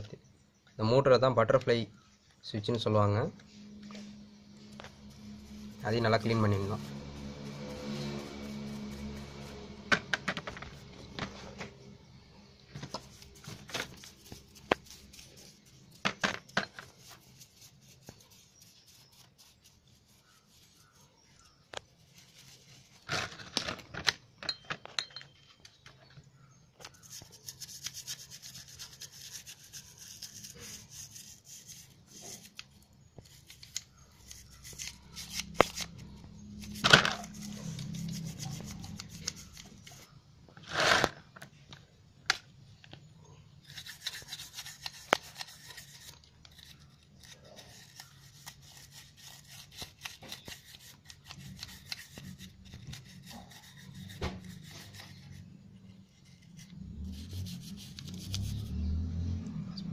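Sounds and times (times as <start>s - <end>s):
plastic brush scrubbing metal: 4.7s - 11.6s, 12.8s - 23.5s, 27.0s - 41.2s, 43.7s - 58.7s.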